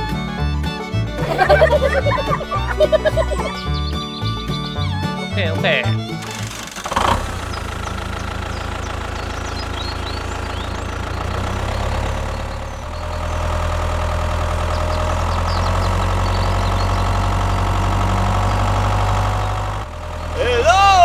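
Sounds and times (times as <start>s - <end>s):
tractor engine droning: 0.0s - 21.0s.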